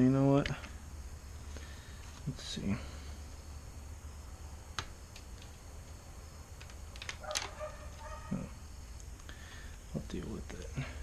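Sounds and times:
steady low hum: 0:00.0 - 0:11.0
grill mesh clicking: 0:04.7 - 0:08.4.

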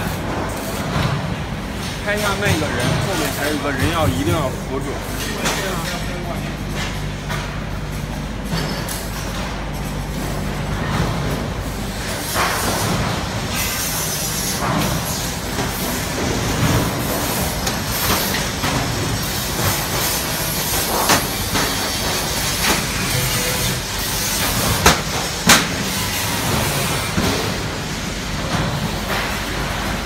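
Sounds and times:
steady background noise: 0:00.0 - 0:30.0.

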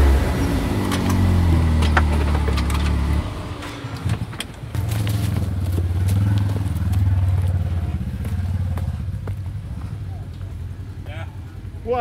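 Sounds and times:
utility vehicle engine running: 0:00.0 - 0:10.8
knocks and rattles: 0:00.8 - 0:05.8.

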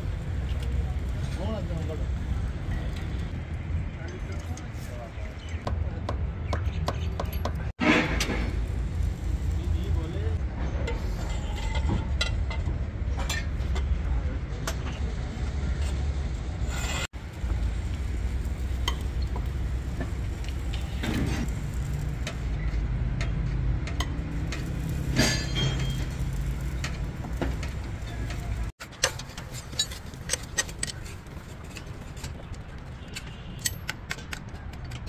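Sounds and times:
steel tools clinking on metal: 0:23.2 - 0:32.4.

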